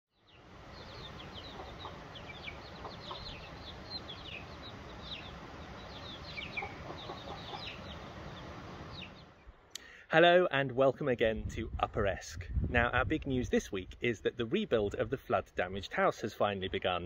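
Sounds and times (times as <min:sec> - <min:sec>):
chicks cheeping and clucking: 0:00.2 - 0:09.4.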